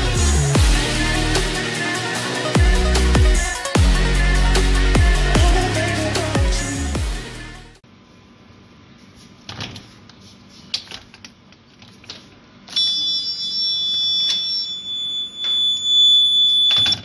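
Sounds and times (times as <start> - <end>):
high-pitched buzzer tone: 12.7 - 17.0.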